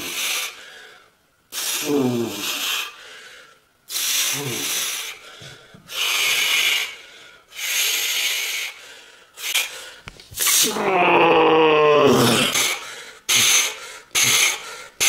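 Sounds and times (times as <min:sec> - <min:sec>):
forceful hissing exhalations: 0:00.0 - 0:10.8, 0:12.2 - 0:15.0
man breathing hard: 0:00.1 - 0:10.1, 0:12.2 - 0:15.0
man grunting: 0:10.6 - 0:12.8.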